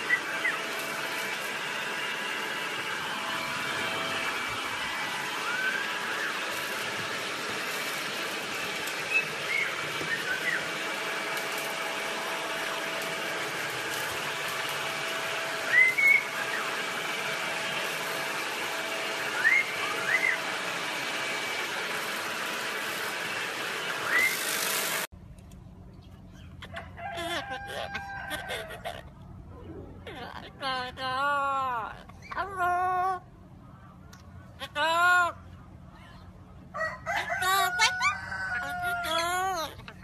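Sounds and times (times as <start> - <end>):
vacuum cleaner motor whine: 0.0 - 25.1
parrot whistled chirps: 5.4 - 6.4, 9.1 - 10.7, 15.6 - 16.7, 19.3 - 20.4, 24.0 - 24.5.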